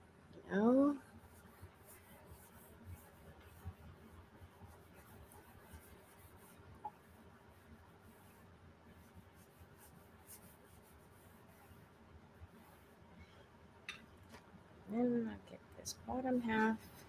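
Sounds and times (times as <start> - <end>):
squeegee scraping paper: 1.2 - 11.9.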